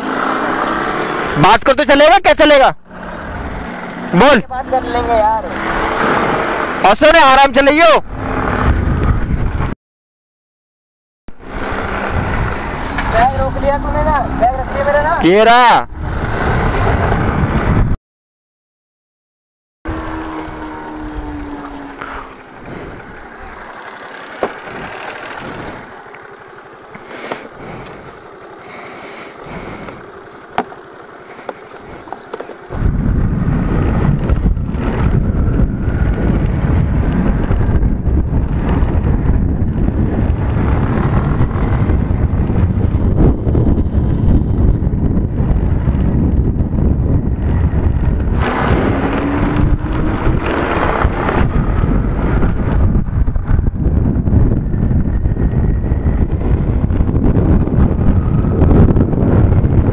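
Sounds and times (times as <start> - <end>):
wind buffeting microphone: 8.0 - 9.8, 11.4 - 18.0, 19.9 - 59.9
rising whine: 19.9 - 59.9.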